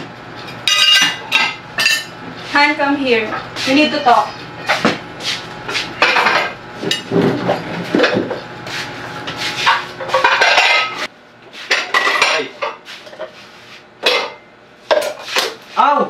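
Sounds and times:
dishes and cutlery clattering: 0.6s - 2.2s, 6.0s - 8.4s, 9.7s - 11.1s, 11.7s - 12.8s, 14.0s - 15.2s.

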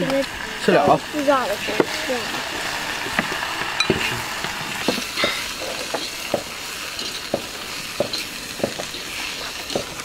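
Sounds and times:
light steady hiss: 0.0s - 10.0s
people chewing and lip-smacking: 3.1s - 10.0s.

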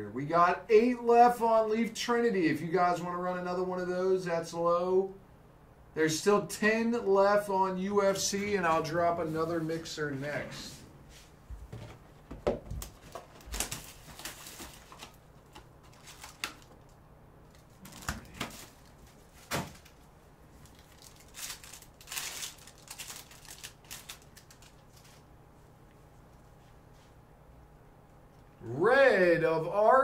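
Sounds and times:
foil wrapper crinkling: 12.8s - 25.3s.

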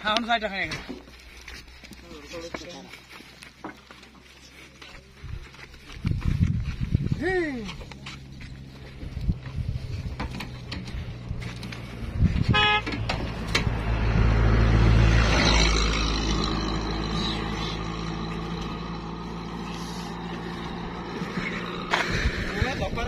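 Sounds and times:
vehicle passing rumble: 0.7s - 23.0s
low engine hum: 0.8s - 23.0s
vehicle horn toot: 12.4s - 13.1s.

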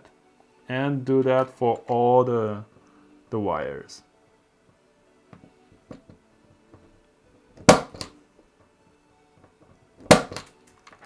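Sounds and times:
punch-down tool snapping: 7.6s - 8.2s, 10.0s - 10.6s.

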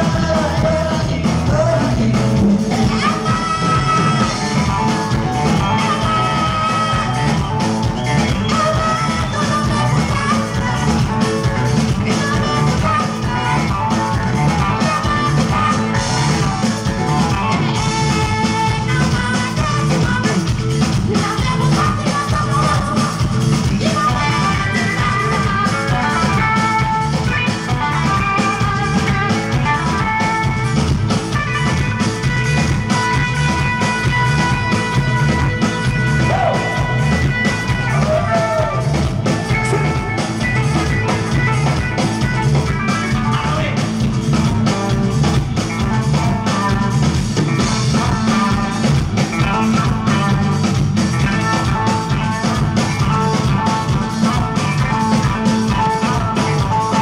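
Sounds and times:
man singing into a microphone: 0.0s - 4.7s, 8.4s - 16.5s, 17.8s - 27.4s, 47.7s - 50.7s
drum kit beat: 0.0s - 57.0s
lead electric guitar: 0.0s - 57.0s.

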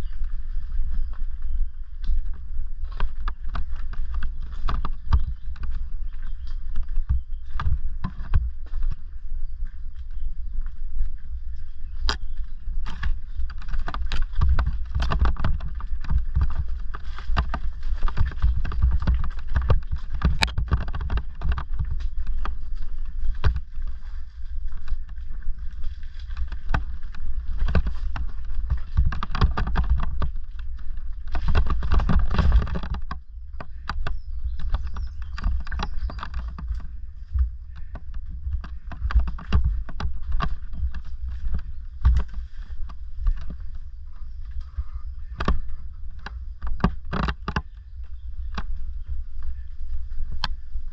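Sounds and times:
bike rattling over stones: 0.0s - 50.9s
low riding rumble: 0.0s - 50.9s.

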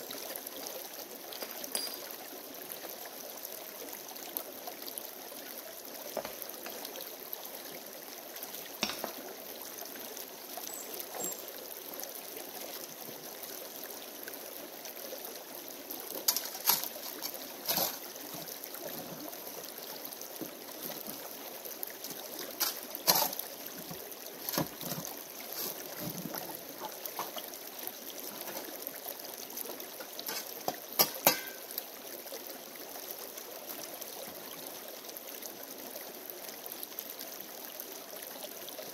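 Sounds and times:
creek running over stones: 0.0s - 38.9s
shovel scraping gravel: 16.3s - 18.0s, 22.5s - 23.4s, 25.5s - 25.9s.

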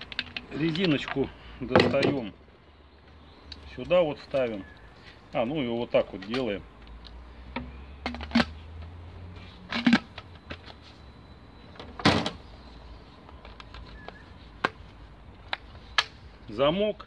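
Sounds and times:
plastic parts knocking and clicking: 0.0s - 2.2s, 7.6s - 8.5s.

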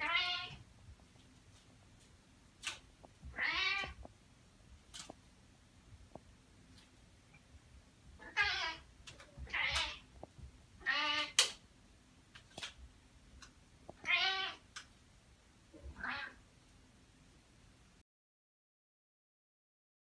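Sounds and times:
cat meowing: 0.0s - 0.6s, 3.3s - 4.0s, 8.2s - 10.1s, 10.8s - 11.5s, 14.0s - 14.6s, 15.8s - 16.4s.

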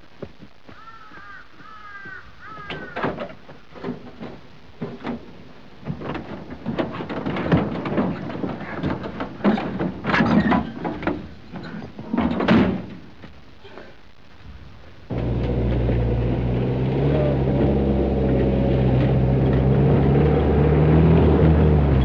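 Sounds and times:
knocks bangs and thumps: 2.6s - 13.1s.

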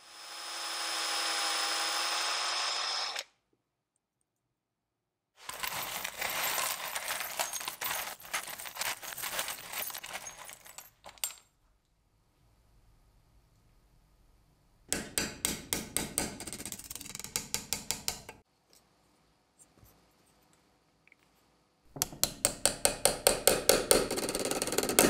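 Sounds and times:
metal parts jangling and clinking: 5.4s - 11.5s.

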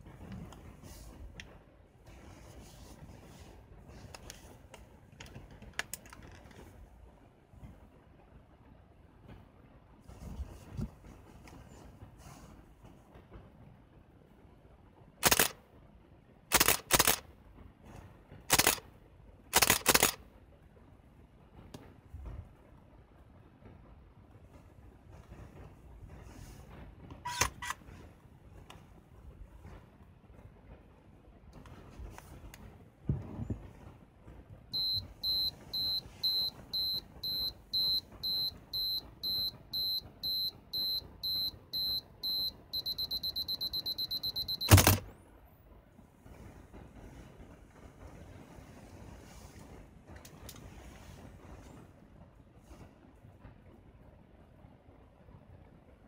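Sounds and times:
camera self-timer beeps: 15.2s - 15.5s, 16.5s - 17.2s, 18.5s - 18.8s, 34.8s - 45.0s
camera shutter and mirror clacks: 15.2s - 15.6s, 16.5s - 17.2s, 18.5s - 18.8s, 19.6s - 20.2s, 27.3s - 27.8s, 43.3s - 45.1s.

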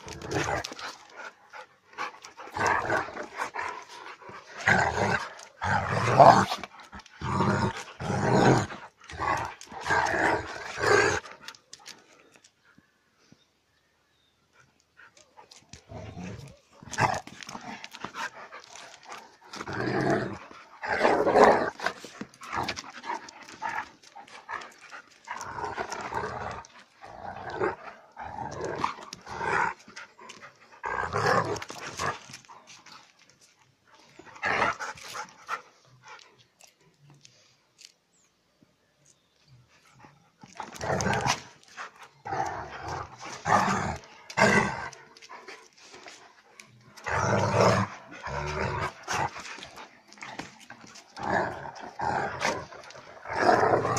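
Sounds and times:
dogs growling: 0.0s - 11.8s, 15.5s - 33.3s, 40.4s - 53.9s.

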